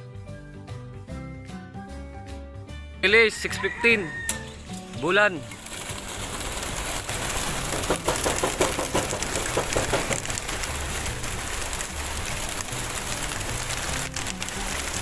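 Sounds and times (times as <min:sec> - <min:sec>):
pigeon wings flapping: 0:04.9 - 0:15.0.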